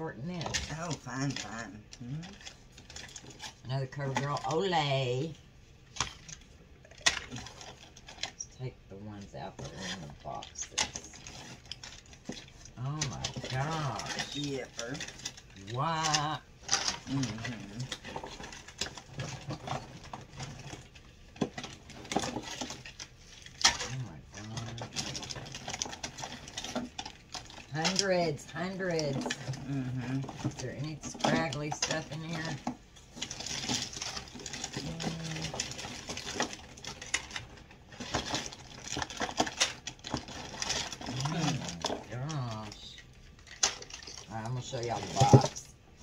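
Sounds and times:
plastic packages clattering: 0.4 - 8.5, 9.6 - 45.8
cosmetic cases clicking and knocking: 10.8 - 24.0.

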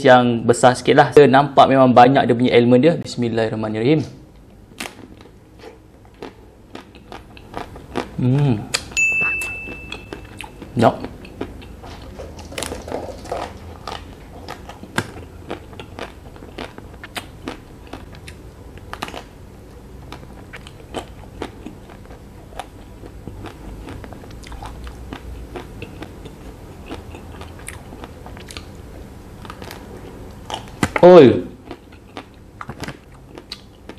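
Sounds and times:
crunchy chewing of ice cream bar: 4.8 - 9.0, 10.1 - 19.4, 20.0 - 28.8, 29.4 - 31.0, 31.6 - 33.9.

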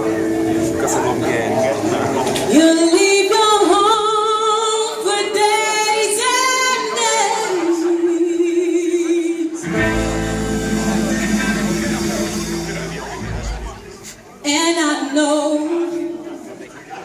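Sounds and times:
band playing: 9.6 - 14.5.

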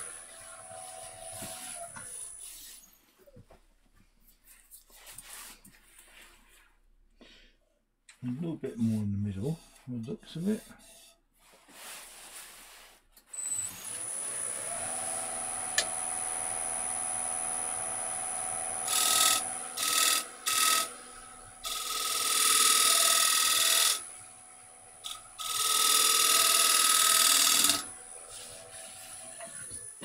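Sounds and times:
hand tool cutting spinning wood: 13.7 - 30.0
wood lathe motor humming: 13.7 - 30.0.

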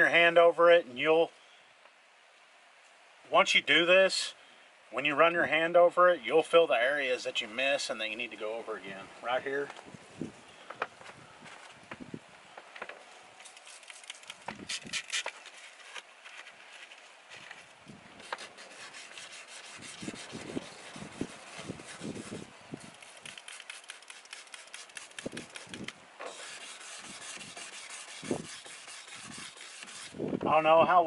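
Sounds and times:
sandpaper scraping plastic: 13.4 - 30.2.

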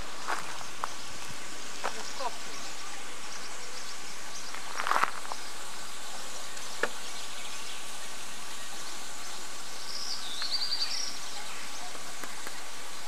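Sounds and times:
outdoor background hiss: 0.0 - 13.0.

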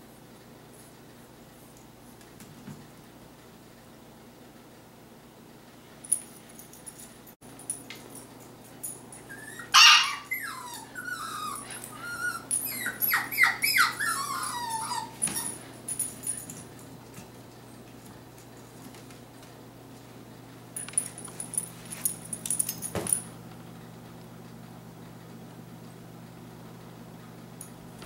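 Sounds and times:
puppy yipping and whining: 9.2 - 15.7.

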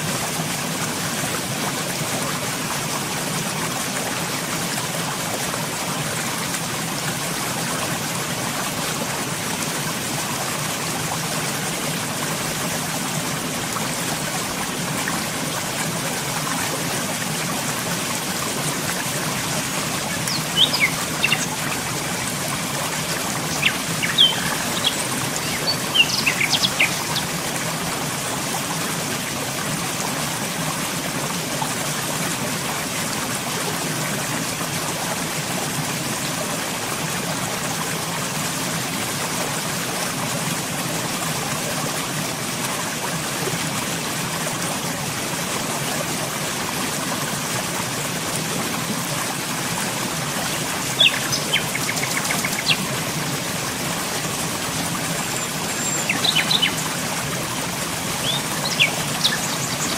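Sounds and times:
stream water running: 0.0 - 59.9
small bird chirping: 20.3 - 21.5, 23.5 - 27.3, 51.0 - 52.8, 55.3 - 56.8, 58.2 - 59.9.

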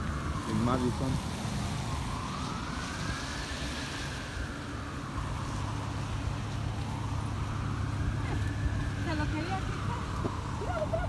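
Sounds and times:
emergency siren wailing: 0.0 - 11.0
low rumble of street traffic: 0.0 - 11.0.

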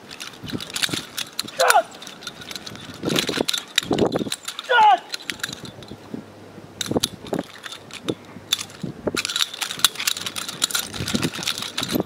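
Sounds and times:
knives clicking and knocking in hands: 0.0 - 6.0, 6.8 - 12.0.

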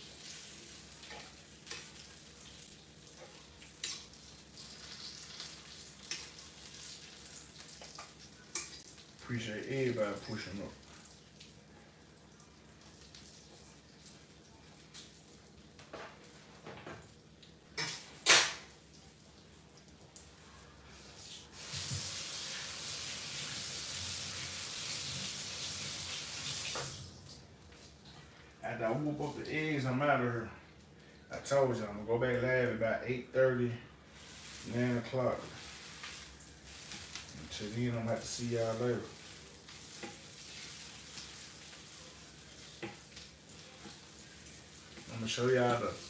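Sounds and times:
meat sizzling on a grill: 0.0 - 11.1, 21.4 - 27.0, 34.1 - 46.0
water running into sink: 21.5 - 27.2, 35.5 - 46.0.

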